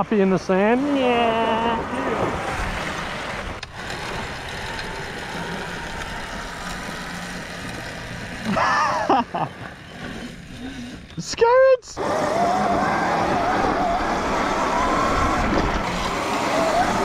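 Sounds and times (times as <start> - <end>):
faint motor hum: 0.0 - 17.0
wind and tyre noise: 0.0 - 17.0
person calling out: 0.8 - 2.3.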